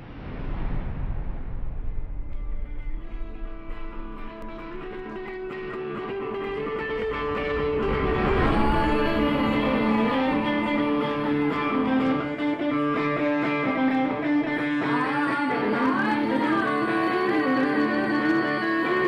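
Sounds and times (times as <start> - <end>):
electric guitar ringing chords: 3.7 - 19.0.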